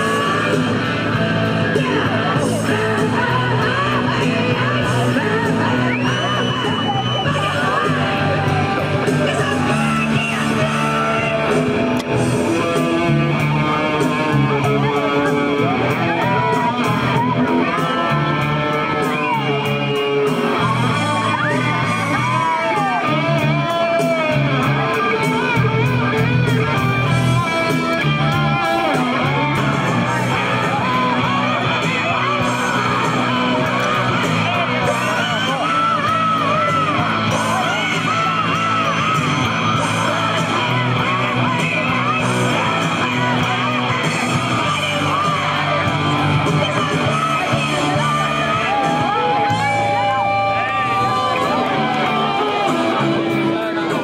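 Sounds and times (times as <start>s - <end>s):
people yelling: 0.0s - 54.0s
person singing: 0.0s - 54.0s
rock band playing: 0.0s - 54.0s.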